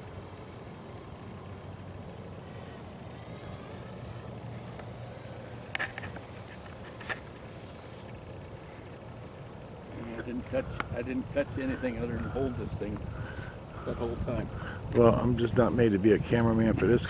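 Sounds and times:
toy drone buzzing: 2.0 - 8.1.

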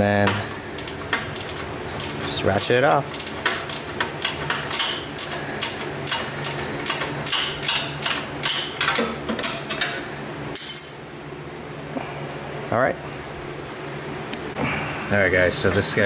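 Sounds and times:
ratcheting wrench clicking: 0.8 - 9.0
metal clinks: 10.6 - 11.1.

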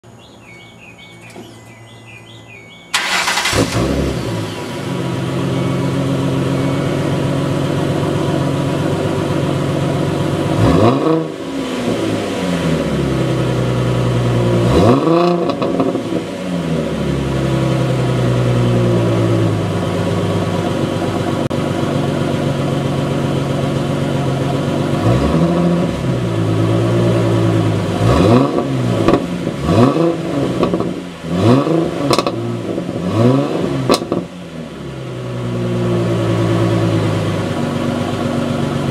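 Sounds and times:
engine throttle blips: 0.6 - 13.2
car engine starting and idling: 0.6 - 38.9.

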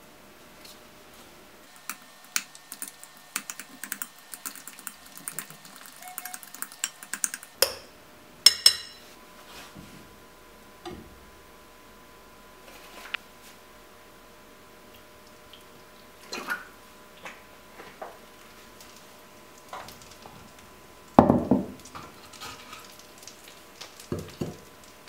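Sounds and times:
fork stirring eggs in glass bowl: 1.7 - 7.6.

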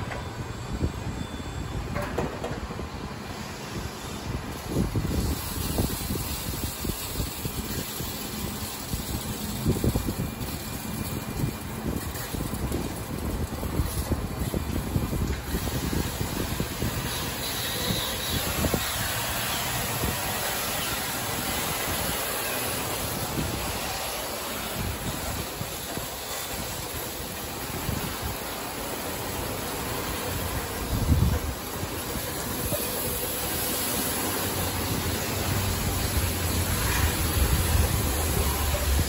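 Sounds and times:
rolling carriage rumble: 4.3 - 39.0
water spray hissing: 4.6 - 39.0.

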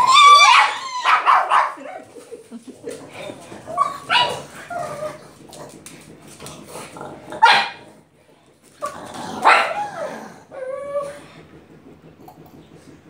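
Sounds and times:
dog barking sharply: 0.5 - 1.8.

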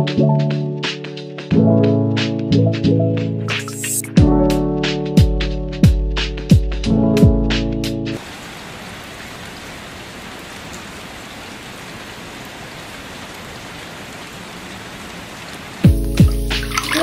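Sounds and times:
background music: 0.0 - 8.2, 15.9 - 17.0
rain falling: 8.2 - 17.0.

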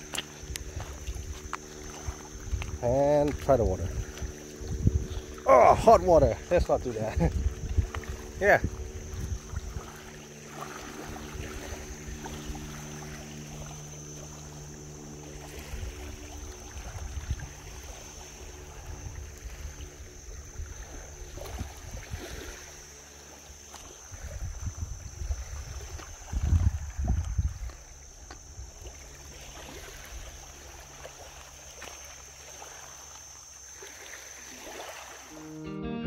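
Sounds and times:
wind rumbling on microphone: 0.0 - 14.7, 15.3 - 22.8, 23.8 - 29.0
small waves lapping on pebbles: 0.0 - 35.4
faint steady drone: 0.0 - 36.0.

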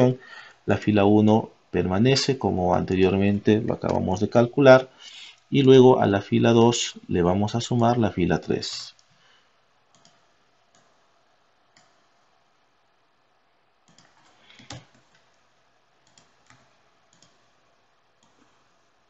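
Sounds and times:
computer keyboard and mouse clicks: 9.9 - 11.0, 11.7 - 12.0, 13.8 - 15.4, 16.0 - 17.5, 18.2 - 18.6.

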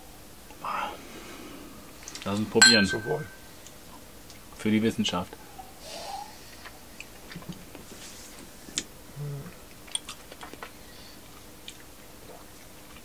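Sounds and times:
glass set on table: 2.6 - 3.4.

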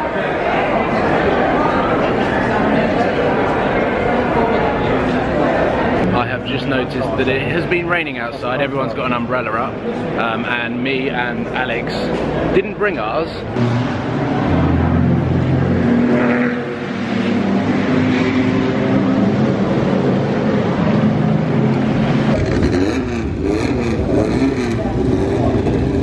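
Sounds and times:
racing car engines revving: 0.4 - 26.0.

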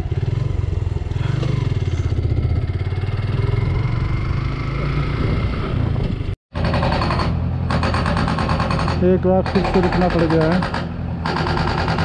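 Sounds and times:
motorcycle engine running: 0.0 - 6.3.

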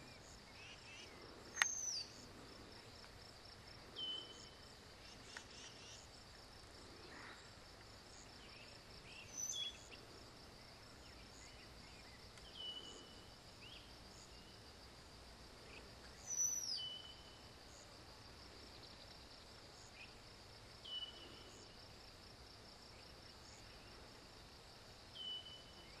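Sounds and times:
bird song phrase: 8.4 - 9.9, 11.0 - 14.6.

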